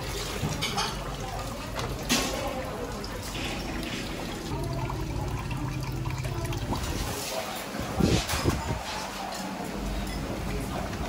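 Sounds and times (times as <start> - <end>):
water trickling and dripping: 0.0 - 8.5.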